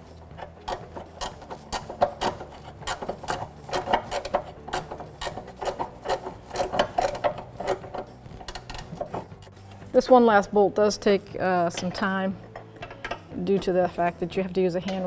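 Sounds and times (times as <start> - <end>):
ratchet wrench clicking: 0.4 - 9.1.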